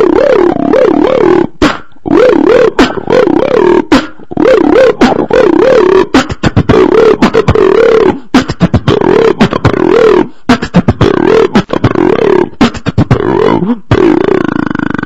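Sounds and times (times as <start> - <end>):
hummed melody: 0.0 - 14.2
beatboxing percussion: 0.0 - 15.0.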